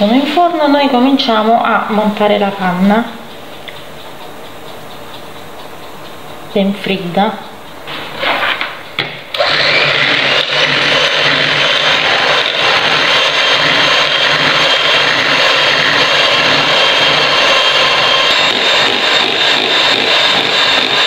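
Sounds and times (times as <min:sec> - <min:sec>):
electric hand mixer running: 0:09.3 - 0:21.0.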